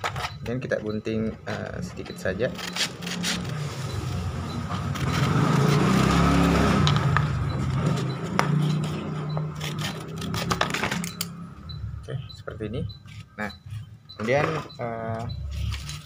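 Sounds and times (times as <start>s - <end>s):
vehicle engine passing: 2.9s - 12.4s
scissors cutting sandpaper: 8.0s - 10.8s.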